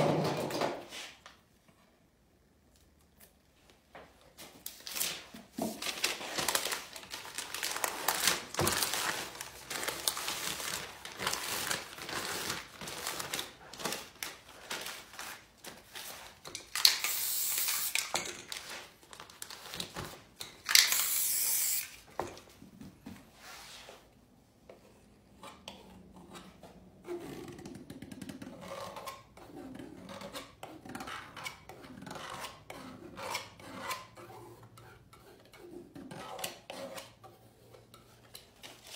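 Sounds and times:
spray paint can hissing: 17.0s - 18.0s, 20.8s - 21.9s.

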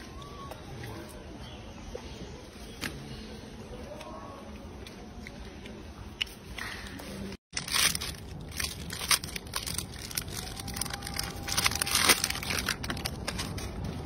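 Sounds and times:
plastic wrapper crinkling: 7.5s - 14.0s.

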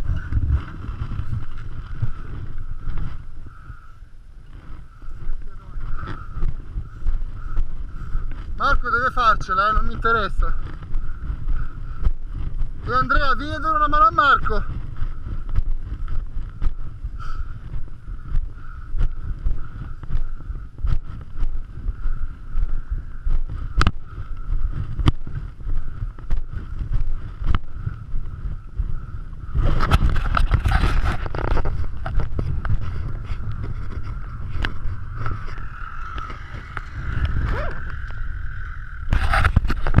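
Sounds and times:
dirt bike engine: 0.0s - 40.0s
wind buffeting microphone: 0.0s - 40.0s.

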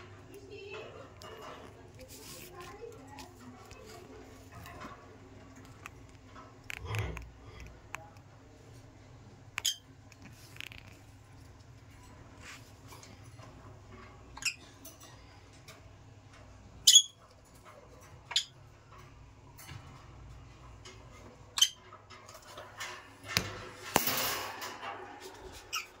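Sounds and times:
rustling: 1.2s - 7.7s.

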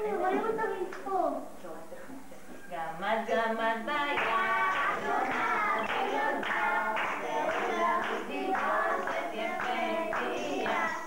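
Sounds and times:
voices singing: 3.0s - 11.0s
hands clapping along: 4.2s - 11.0s.

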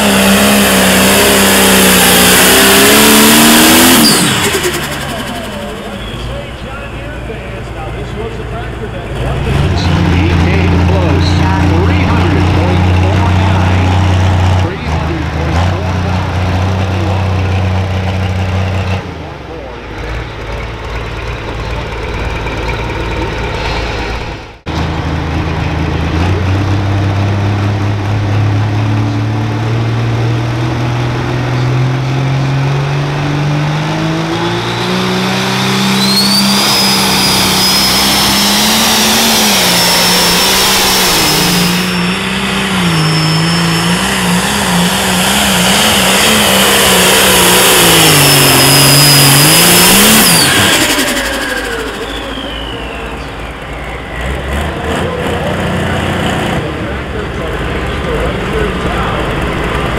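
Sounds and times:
diesel tractor engine revving: 0.0s - 59.9s
turbo whistle: 35.8s - 44.9s, 47.8s - 54.4s.

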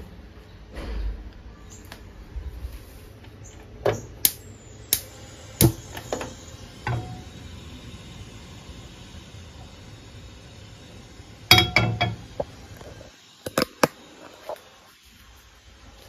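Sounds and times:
gas stove igniter clicks: 3.9s - 8.1s, 13.4s - 14.0s.

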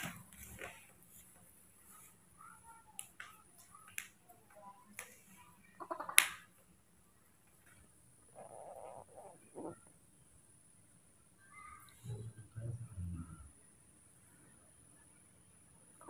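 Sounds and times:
soft rustle: 0.0s - 3.9s.

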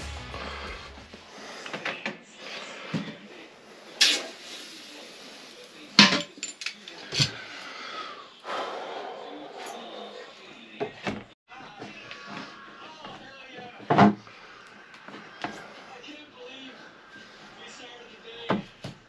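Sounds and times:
background music: 0.0s - 1.5s
hand tools clinking and knocking: 6.0s - 7.4s.

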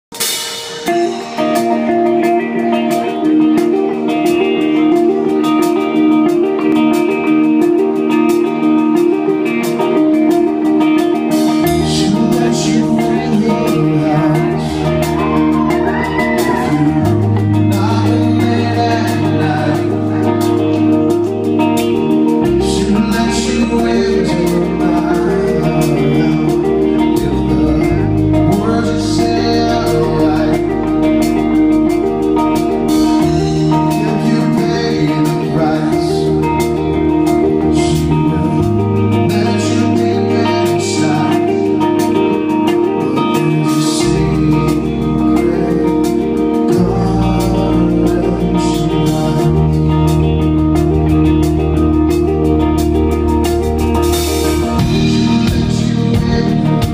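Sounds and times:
electric guitar: 0.0s - 56.9s
bass line: 0.2s - 56.9s
man singing: 10.6s - 52.1s, 54.1s - 56.9s.

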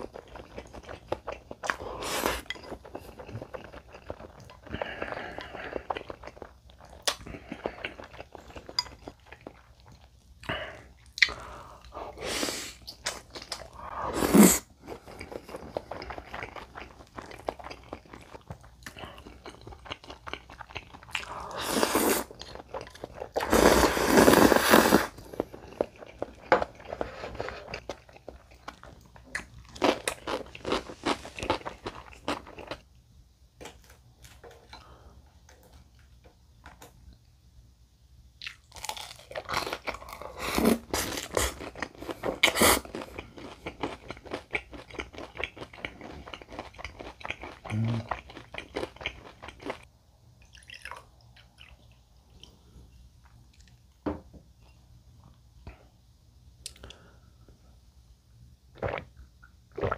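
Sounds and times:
slurping noodles: 13.9s - 15.3s, 21.2s - 22.4s, 23.4s - 25.5s.

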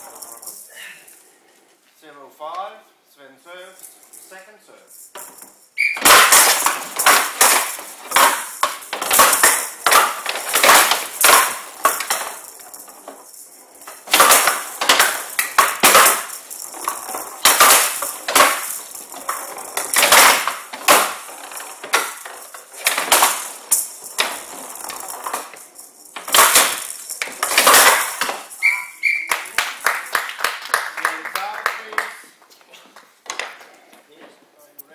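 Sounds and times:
pellet ball rattling: 0.0s - 0.8s, 4.9s - 31.9s
rapid sharp clacks: 5.8s - 32.3s
ball cracking against wooden boards: 6.0s - 28.6s.

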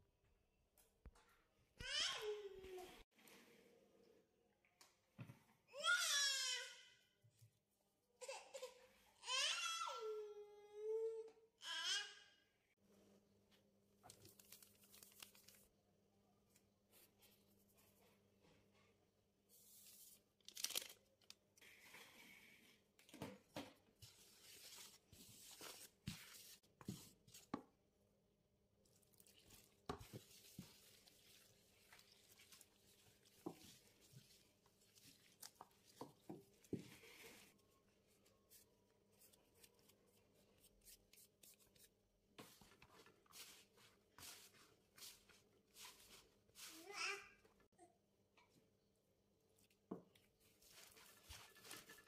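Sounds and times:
sachet tearing open: 20.4s - 21.4s.

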